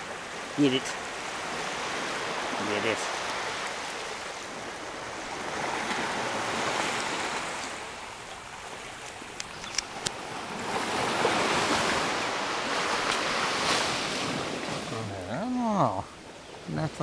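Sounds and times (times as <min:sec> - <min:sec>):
surf washing onto beach: 0:00.0 - 0:17.0
sharp clicks: 0:09.4 - 0:10.2.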